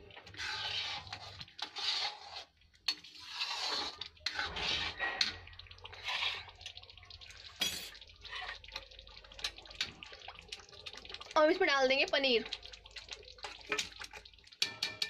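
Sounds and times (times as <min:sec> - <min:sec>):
spoon stirring thick gravy: 0:00.0 - 0:15.0
spoon clinking against pan: 0:14.6 - 0:15.0.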